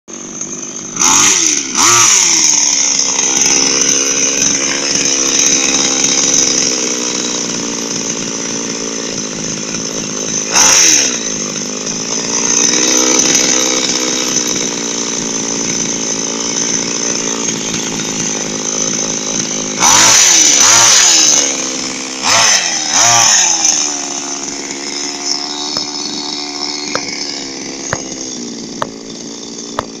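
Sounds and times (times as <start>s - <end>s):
small chainsaw engine revving: 0.1s - 30.0s.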